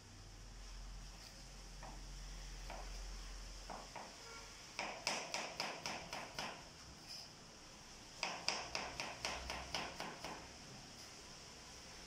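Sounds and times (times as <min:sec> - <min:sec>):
knife chopping vegetables: 0:08.2 - 0:10.5.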